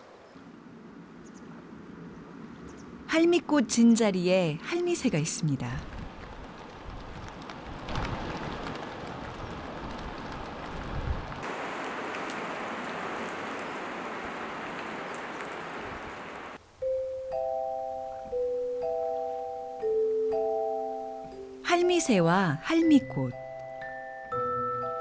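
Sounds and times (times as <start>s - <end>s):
soft bell-like mallet percussion music: 16.8s - 21.6s, 22.8s - 25.0s.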